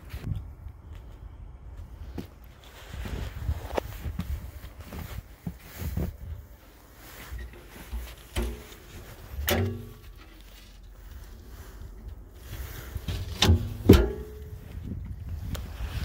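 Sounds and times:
light knocks and rattles: 7.4s - 11.0s.

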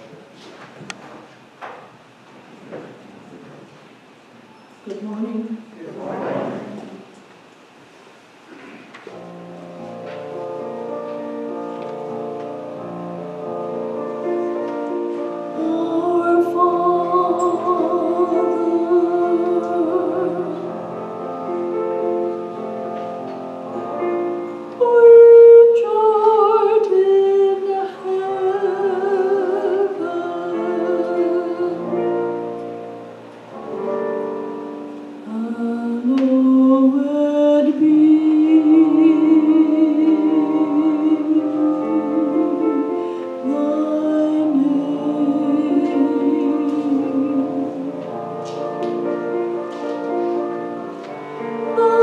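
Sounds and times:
woman singing with vibrato: 4.8s - 5.8s, 15.0s - 21.0s, 24.8s - 32.5s, 35.2s - 48.3s, 51.4s - 52.0s
instrumental accompaniment: 9.1s - 36.9s, 37.7s - 52.0s.

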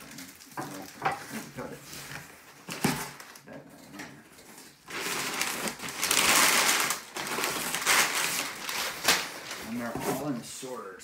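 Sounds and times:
packing paper crinkling: 4.8s - 10.3s.

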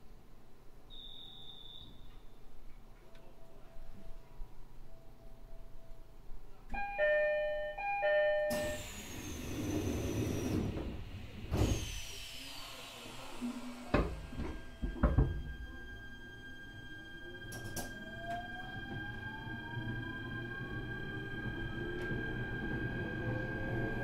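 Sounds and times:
faint high whistles: 0.9s - 2.6s
two-note train door chime: 6.7s - 9.1s.

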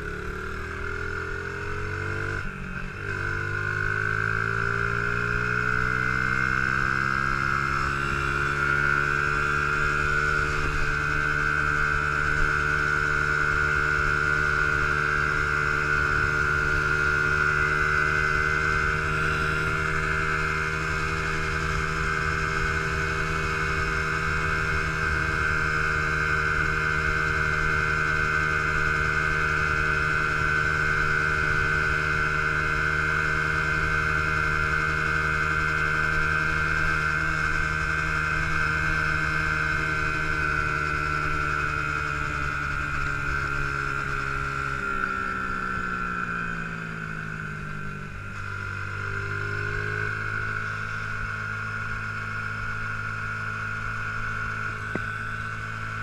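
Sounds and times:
small motorbike engine cruising: 0.0s - 56.0s.

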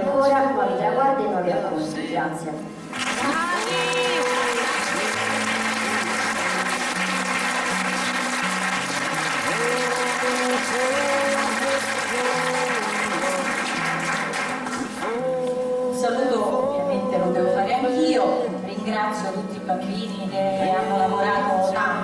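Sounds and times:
audience applauding: 2.9s - 15.4s.

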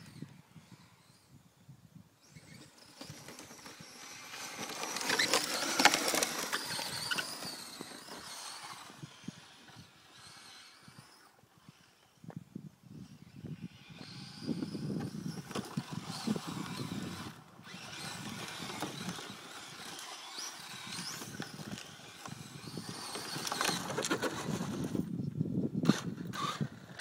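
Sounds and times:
electric motor whining: 2.2s - 25.2s
tyres scrabbling on loose dirt: 2.3s - 12.0s, 14.0s - 25.2s.

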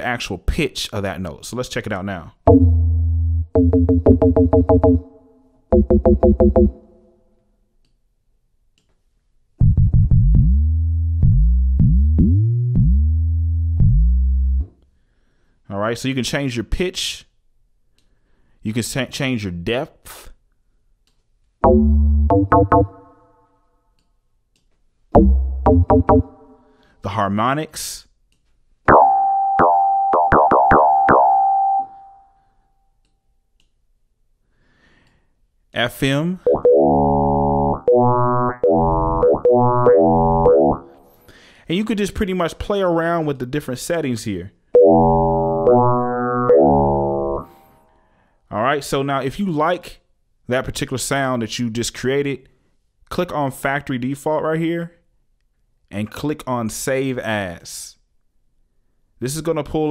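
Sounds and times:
short plucked synth notes: 2.5s - 6.9s, 21.6s - 23.2s, 25.2s - 26.6s, 28.9s - 32.1s, 36.5s - 41.0s, 44.8s - 47.6s
deep synth bass notes: 2.5s - 7.0s, 9.6s - 14.7s, 21.6s - 23.2s, 25.2s - 26.6s, 36.5s - 41.0s, 44.8s - 47.6s.

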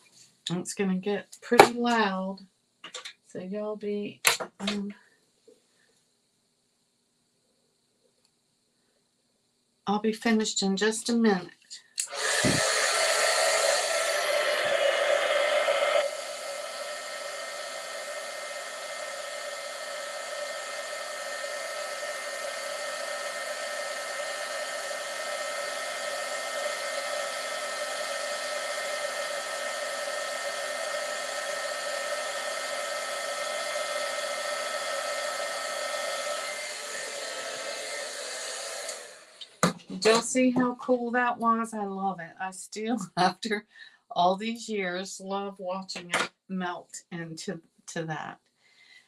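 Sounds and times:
heat tool blowing air: 12.0s - 40.2s.

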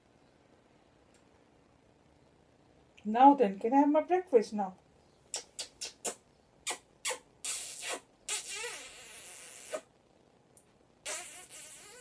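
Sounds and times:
parrot hissing sucking sounds: 5.3s - 9.9s, 11.0s - 12.0s
wet kissing smacks: 5.3s - 9.9s, 11.0s - 12.0s.

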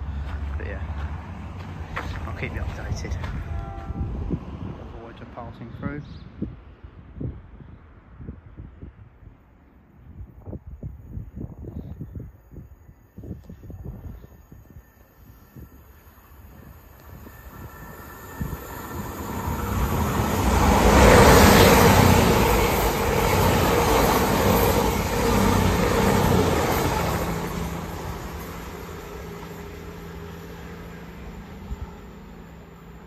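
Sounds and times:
train passing at speed: 0.0s - 5.8s, 13.8s - 33.0s.

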